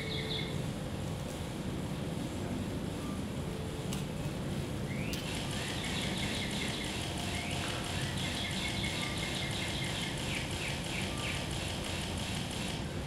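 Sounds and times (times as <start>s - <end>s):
birds chirping: 4.9s - 11.6s.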